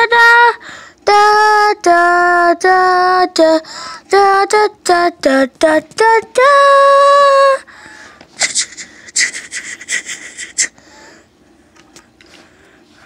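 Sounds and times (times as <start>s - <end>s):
high voice singing: 0.0s - 7.7s, 8.4s - 10.8s.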